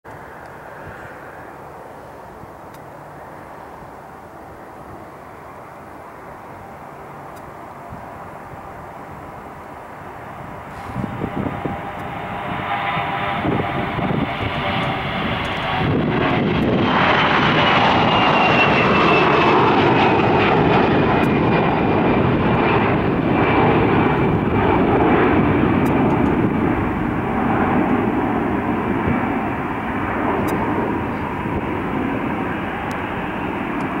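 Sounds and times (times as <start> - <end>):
high fan whine: 0.1 - 16.9
jet engine rumble: 0.1 - 34.0.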